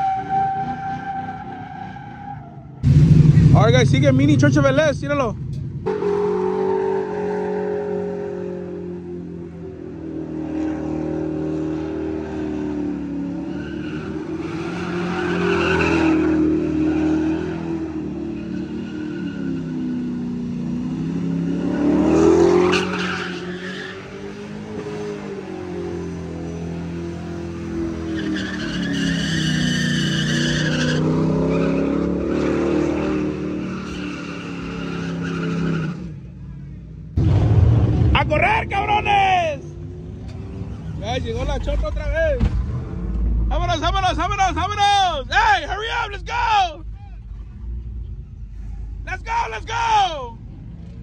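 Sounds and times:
tyres squealing on pavement: 0.0s - 2.8s, 13.4s - 20.2s, 22.5s - 24.6s, 27.4s - 36.2s, 40.3s - 42.4s
tires squealing on pavement: 0.0s - 5.3s, 5.9s - 8.7s, 10.3s - 36.3s, 37.4s - 50.4s
truck engine revving: 0.0s - 8.8s, 9.9s - 36.2s, 37.2s - 45.3s.

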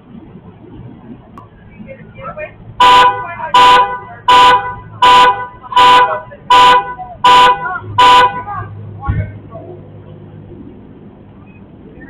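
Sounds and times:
car horn honking: 2.8s - 8.7s.

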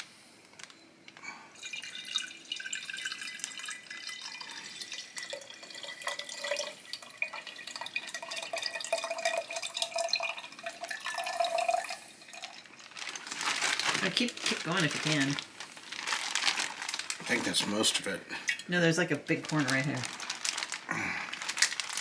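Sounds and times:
liquid trickling into glass jar: 1.5s - 14.0s.

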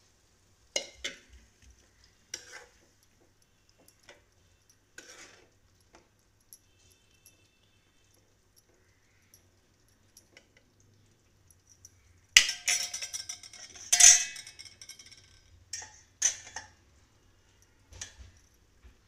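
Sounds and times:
metal spoon scraping steel pot: 2.3s - 3.0s, 5.0s - 6.0s
ringing metal clinks: 11.5s - 16.8s.

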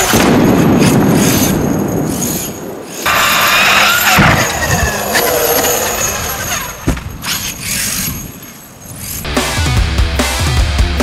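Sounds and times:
rc truck motor whining: 3.0s - 9.3s.

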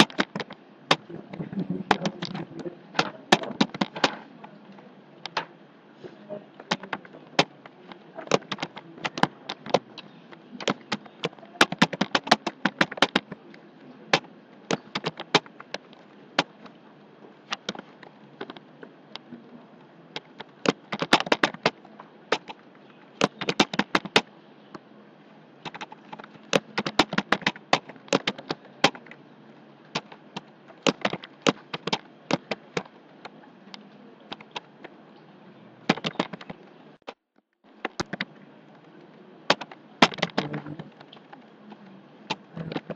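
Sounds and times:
computer keyboard typing: 0.0s - 4.2s, 6.6s - 13.4s, 14.1s - 16.6s, 20.1s - 22.6s, 23.2s - 24.3s, 25.6s - 29.2s, 29.9s - 32.9s, 35.9s - 36.6s.

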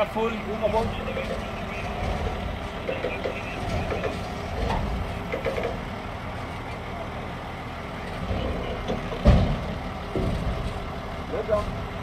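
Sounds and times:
faint voices: 0.0s - 9.3s
truck engine running: 0.0s - 12.0s.

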